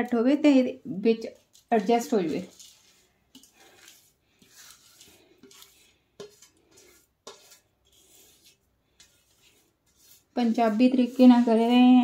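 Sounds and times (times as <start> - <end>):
seeds scraping off steel plate: 1.3 - 12.0.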